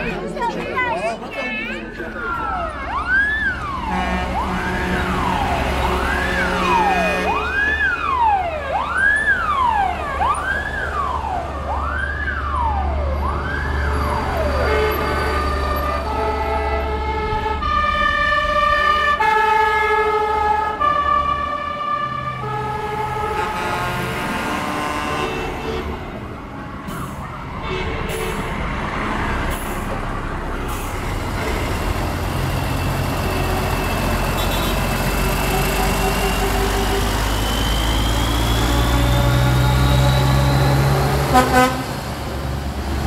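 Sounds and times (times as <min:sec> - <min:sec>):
truck diesel engines running: 0:00.0 - 0:43.0
siren wailing: 0:02.2 - 0:23.4
multi-tone horn held notes: 0:41.3 - 0:41.9.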